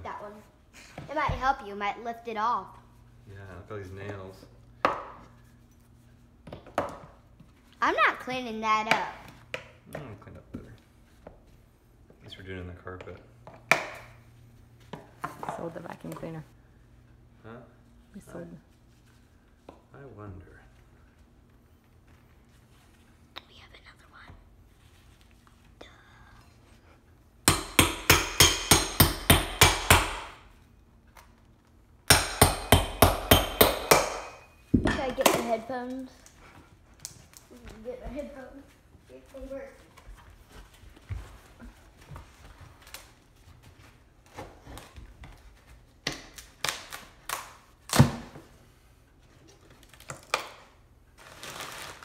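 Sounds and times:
hammer striking metal bar: 27.5 - 30.4, 32.1 - 35.0.

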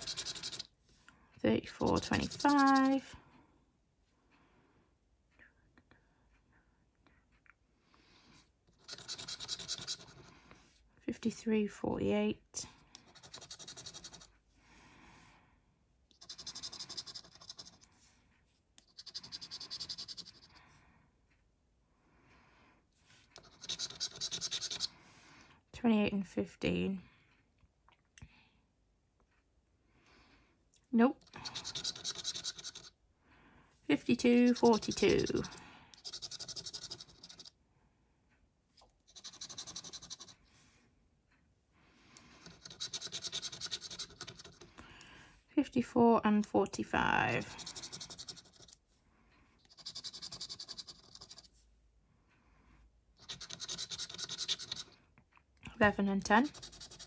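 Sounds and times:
coin scratching a scratchcard: 0.0 - 0.7, 1.8 - 3.0, 8.7 - 10.3, 13.0 - 14.3, 16.1 - 17.8, 18.8 - 20.6, 23.4 - 24.9, 31.2 - 32.9, 34.0 - 37.5, 39.1 - 40.4, 42.4 - 44.7, 47.4 - 48.8, 49.6 - 51.5, 53.2 - 55.0, 56.2 - 57.0.

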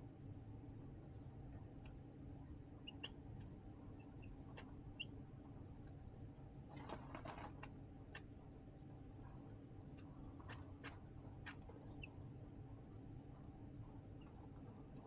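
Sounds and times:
steady low hum: 0.0 - 15.0
chick peeping: 2.8 - 5.3, 10.4 - 12.4, 14.1 - 15.0.

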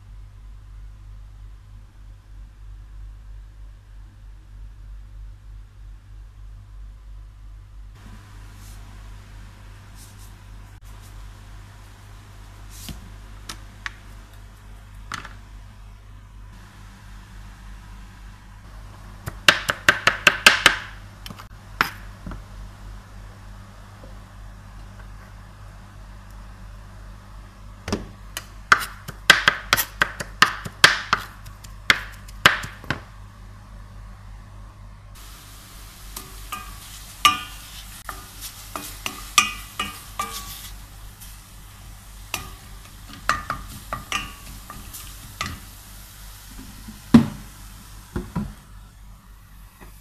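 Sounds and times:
steady low hum: 0.0 - 20.0, 20.9 - 50.0
knife chopping on plastic board: 28.7 - 33.0.

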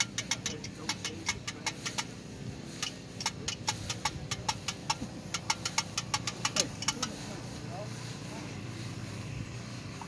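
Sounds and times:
sharp ticking clicks: 0.0 - 7.3
car engine idling: 0.0 - 10.0.

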